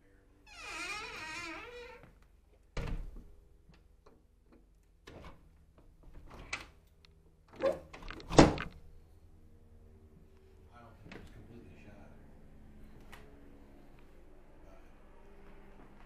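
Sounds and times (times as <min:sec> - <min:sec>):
wavering pitched creak: 0:00.5 - 0:02.0
wooden door thuds: 0:08.0 - 0:08.7.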